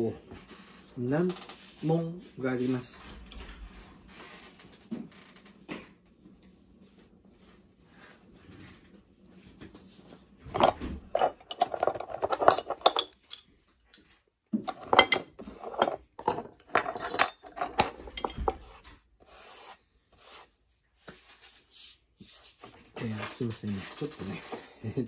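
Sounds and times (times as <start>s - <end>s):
metal tools clinking and rattling: 10.5s - 18.7s.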